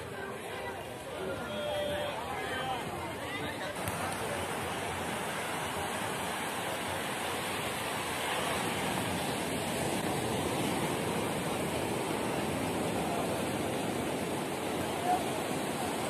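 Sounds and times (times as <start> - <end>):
ocean surf breaking on beach: 3.7 - 16.0.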